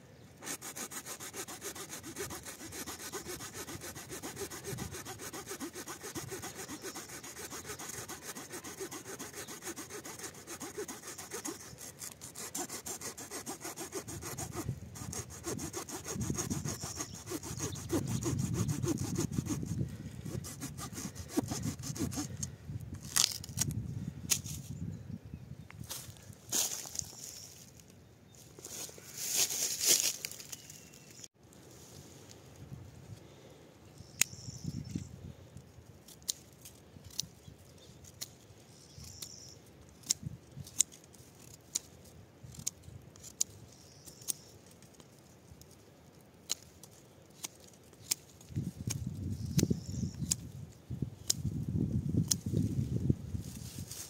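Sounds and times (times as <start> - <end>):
saw rasping through wood: 0.4 - 22.4.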